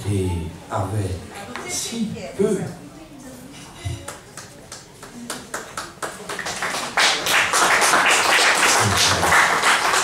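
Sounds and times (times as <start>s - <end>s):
audience applause: 5.2s - 10.0s.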